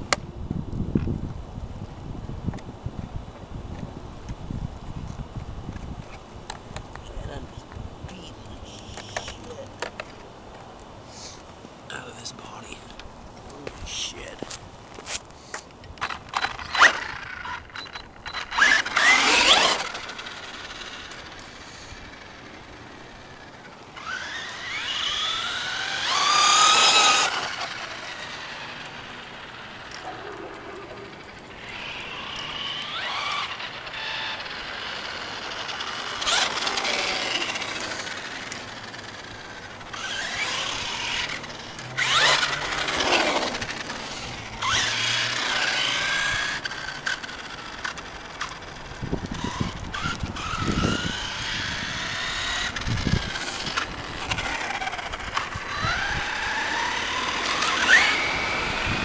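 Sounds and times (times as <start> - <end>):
rc car electric motor whining: 8.6 - 9.6, 16.0 - 59.0.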